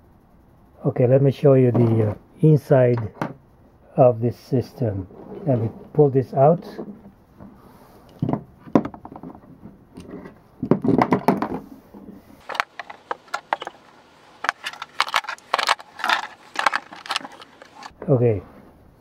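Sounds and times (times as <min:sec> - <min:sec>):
chess pieces clacking on wooden board: 0:12.4 - 0:17.9.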